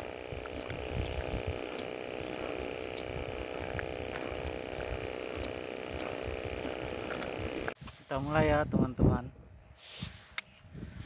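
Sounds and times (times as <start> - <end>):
faint steady hum: 0.0 - 7.8
irregular low rumble: 0.0 - 7.8.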